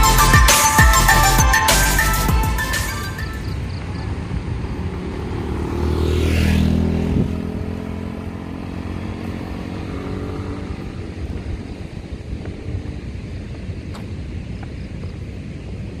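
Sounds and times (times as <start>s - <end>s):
motor scooter passing by: 3.5s - 14.0s.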